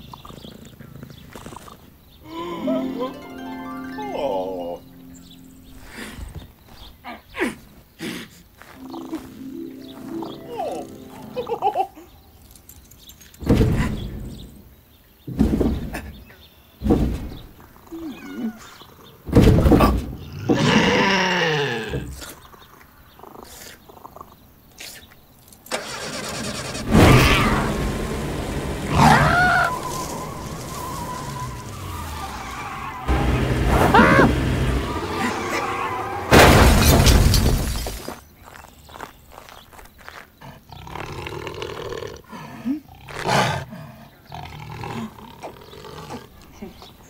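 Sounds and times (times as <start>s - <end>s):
car engine starting and running: 25.7s - 36.4s
loud sudden bursts: 25.7s - 37.4s
big cat growls: 40.6s - 46.8s.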